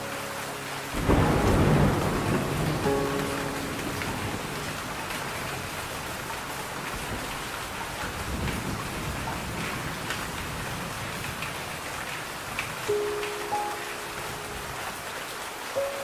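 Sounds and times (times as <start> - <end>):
steady rain: 0.0 - 16.0
thunder rumble: 0.9 - 12.9.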